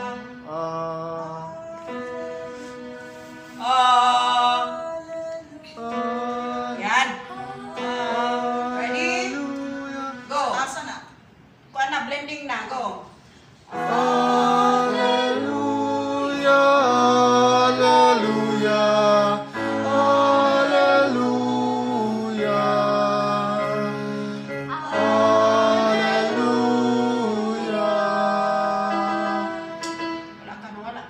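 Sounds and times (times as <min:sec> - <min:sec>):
small choir singing a hymn: 0:00.0 - 0:10.8, 0:13.7 - 0:30.6.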